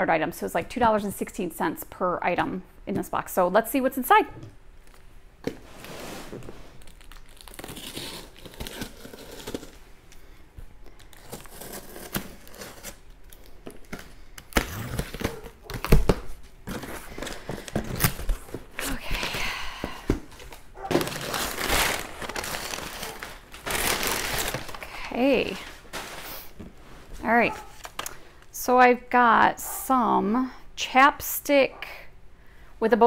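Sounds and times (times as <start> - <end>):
packaging crinkling and tearing: 6.7 - 9.8, 10.9 - 19.4, 20.3 - 26.6, 27.6 - 28.2
knocks and thumps of items handled: 25.6 - 28.1.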